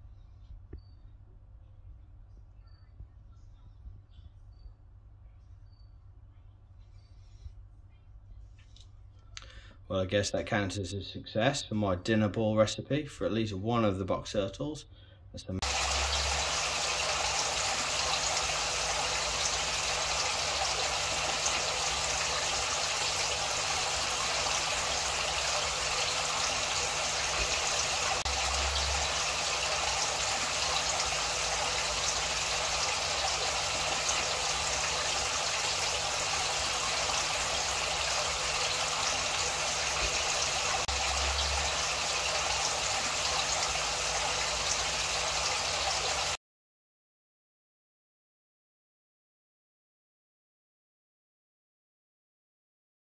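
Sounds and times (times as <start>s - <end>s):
faint low hum: 0.0s - 9.8s
running water rushing: 15.6s - 46.4s.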